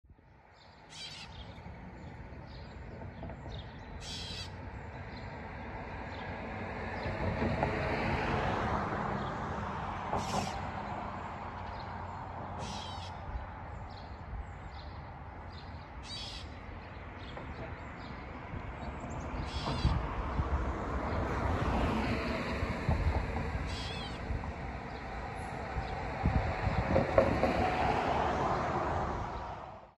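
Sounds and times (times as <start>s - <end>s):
catbird meowing call: 0.9s - 1.5s, 4.0s - 4.6s, 10.2s - 10.6s, 12.6s - 13.3s, 16.0s - 16.6s, 19.4s - 20.0s, 23.7s - 24.2s.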